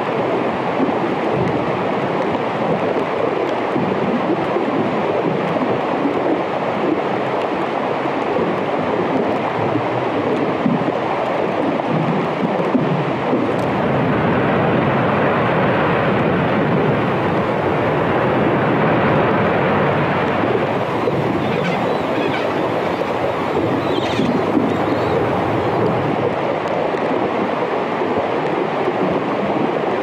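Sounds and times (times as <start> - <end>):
faint clicks: 20.2 - 26.0.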